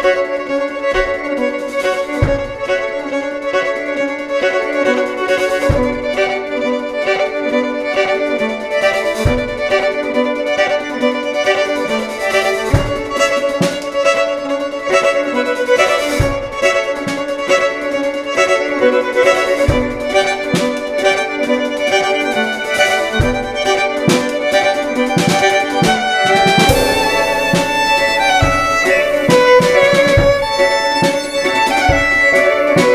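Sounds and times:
bowed violin: 0.0 - 32.9
low drum beat: 26.7 - 32.4
cymbal and stick strokes: 26.7 - 32.9.

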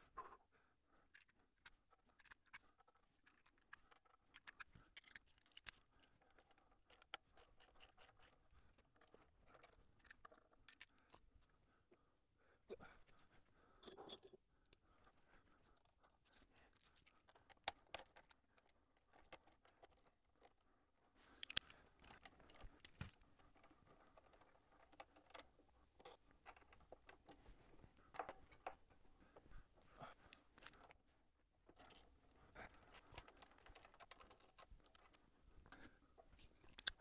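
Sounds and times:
hand tools clicking and scraping: 1.1 - 11.2, 21.3 - 29.5, 31.7 - 35.9.

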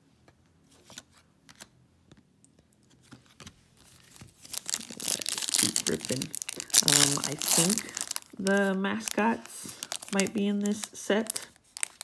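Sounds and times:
plastic wrapper crinkling: 3.9 - 12.0.

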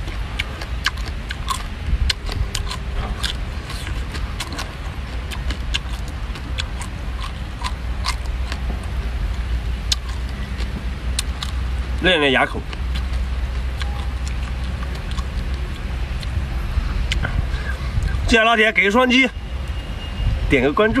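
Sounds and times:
crab shells crunching: 0.0 - 16.4
steady low rumble: 0.0 - 21.0.

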